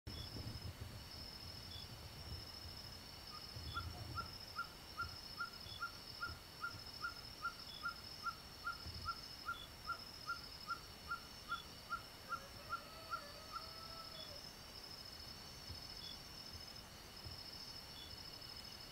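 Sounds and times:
insects trilling: 0.1 - 18.9
low sliding animal call: 12.3 - 14.4.

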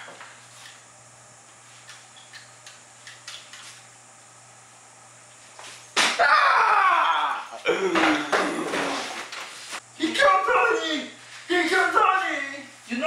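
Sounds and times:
loud vocal cry: 6.2 - 8.6.

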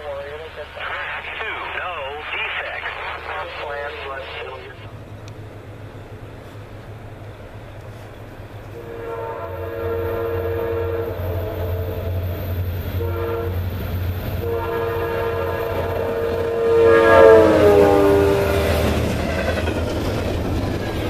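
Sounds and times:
diesel engine and train rumble: 0.0 - 21.0
locomotive air horn blasts: 8.7 - 13.7, 14.4 - 19.0.

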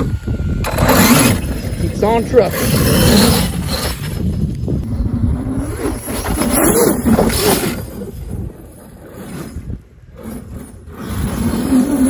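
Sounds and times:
electric motor whine: 0.0 - 12.0
tires rushing on sand: 0.0 - 12.0.

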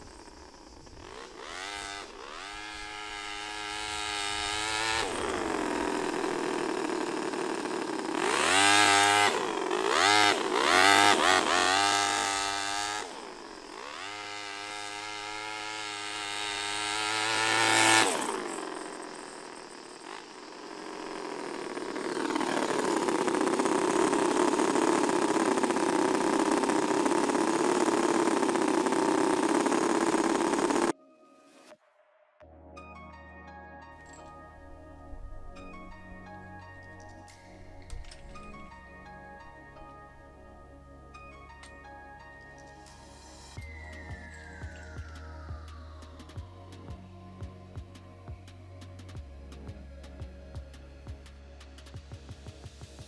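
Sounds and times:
small engine revving: 0.0 - 31.0.

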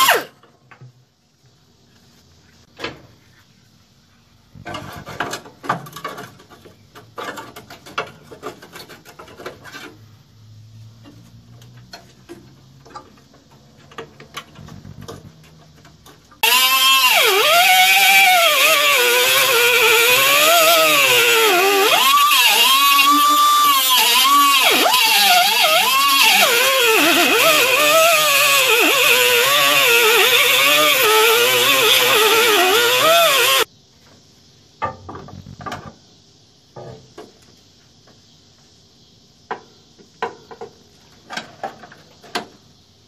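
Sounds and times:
handheld grinder whining: 0.0 - 0.3, 16.4 - 33.7.

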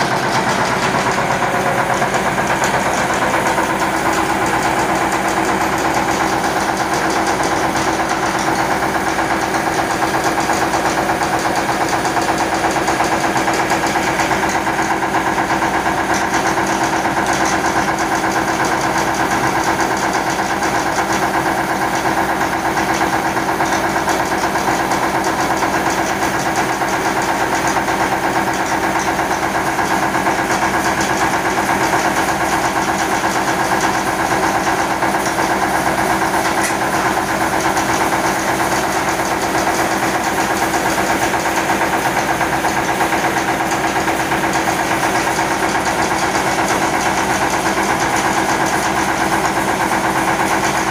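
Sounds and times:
diesel engine beat: 0.0 - 25.8
rice mill mechanical din: 0.0 - 50.9.

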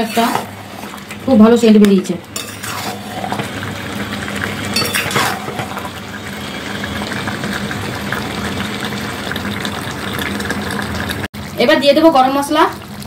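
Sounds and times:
curry bubbling: 0.0 - 13.0.

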